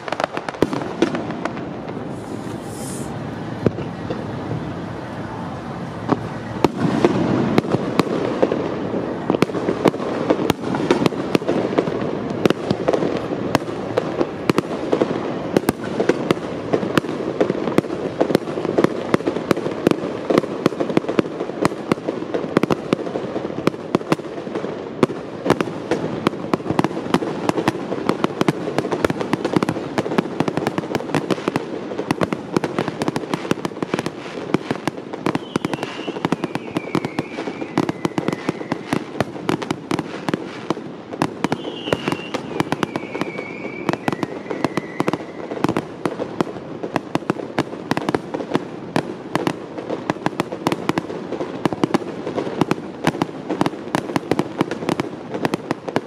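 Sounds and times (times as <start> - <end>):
fireworks bangs and crackles: 0.0 - 56.0
rumble of fireworks booms: 0.0 - 56.0.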